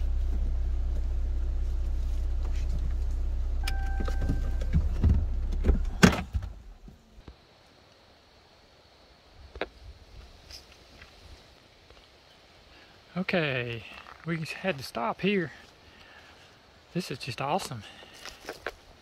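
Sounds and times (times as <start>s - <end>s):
car engine idling: 0.0s - 7.2s
short electronic chime: 3.6s - 4.7s
car door clacking shut: 3.6s - 6.6s.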